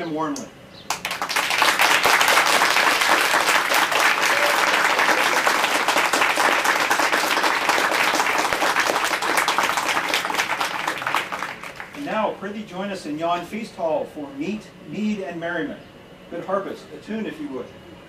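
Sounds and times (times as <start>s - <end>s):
crowd applauding: 0.9s - 12.0s.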